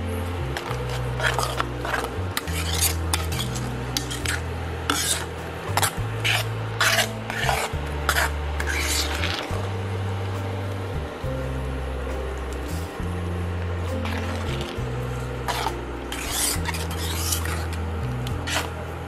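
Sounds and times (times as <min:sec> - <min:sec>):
ladle scraping a steel pan: 0:00.6 - 0:09.6, 0:15.4 - 0:18.8.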